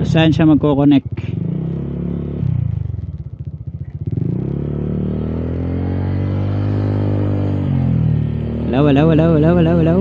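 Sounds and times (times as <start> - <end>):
scooter engine revving: 0.8 - 10.0.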